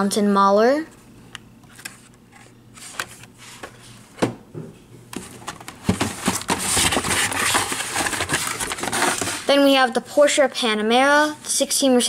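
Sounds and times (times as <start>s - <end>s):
plastic packs rustling and clicking: 5.1s - 9.6s.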